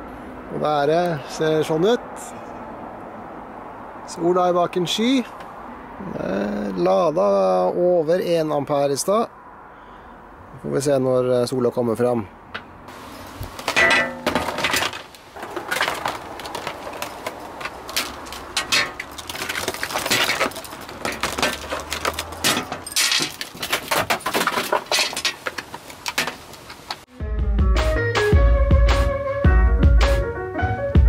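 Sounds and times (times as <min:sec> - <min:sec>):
plastic packaging crinkling: 0:13.0 - 0:22.4
music with a beat: 0:27.1 - 0:31.0.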